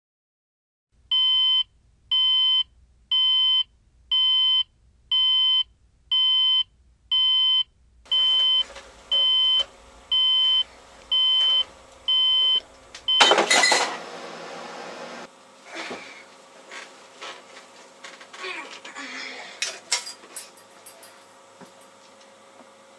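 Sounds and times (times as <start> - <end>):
digital alarm clock beeping: 1.1 - 13.4.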